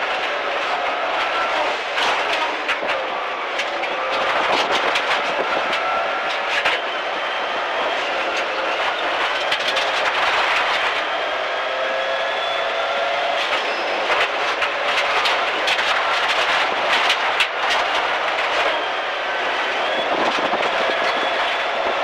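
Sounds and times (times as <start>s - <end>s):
rally car engine pulling hard: 0.0s - 22.0s
gravel clattering against underside: 13.4s - 18.9s.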